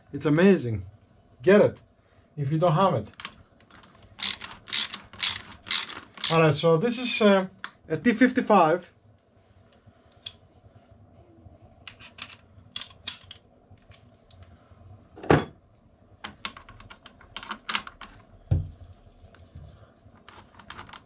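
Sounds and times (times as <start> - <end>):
ratchet clicks and metallic taps: 4.2 - 6.4
dull thump: 18.5 - 18.8.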